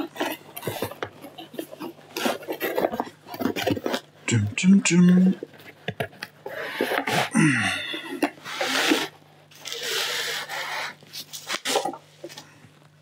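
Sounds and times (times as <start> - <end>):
packaging rustling: 8.1 - 12.4.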